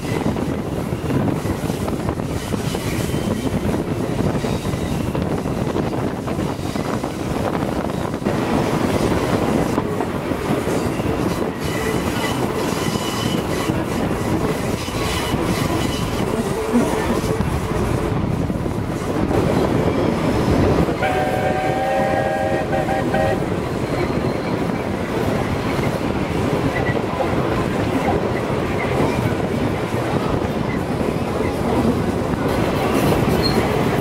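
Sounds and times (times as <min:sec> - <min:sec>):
train wheels clattering on rails: 0:00.0 - 0:34.0
high wheel squeal: 0:11.6 - 0:17.4.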